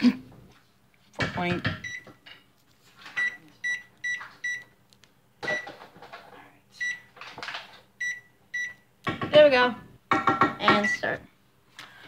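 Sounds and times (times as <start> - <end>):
oven keypad beeps: 1.8 - 2.2, 3.2 - 4.7, 5.4 - 5.7, 6.8 - 7.1, 8.0 - 8.9.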